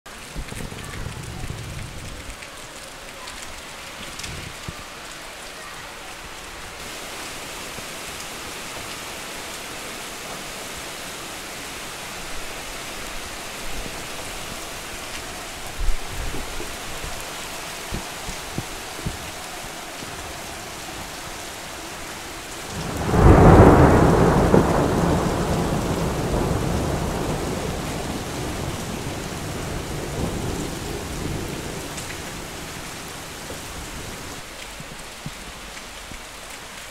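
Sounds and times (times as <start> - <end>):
steady rain: 0.1 - 36.9
thunderclap rumbling: 0.3 - 2.4, 22.6 - 34.5.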